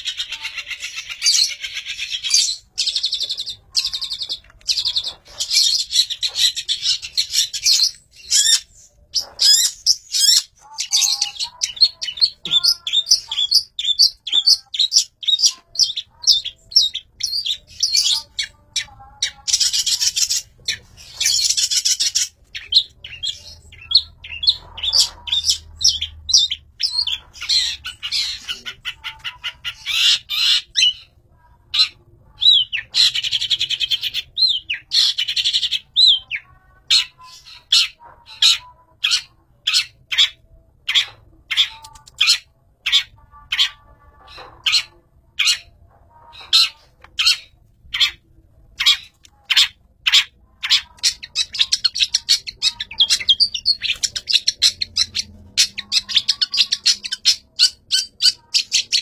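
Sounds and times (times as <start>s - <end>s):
bird scratchy chattering: 0.0s - 31.0s, 48.8s - 59.0s.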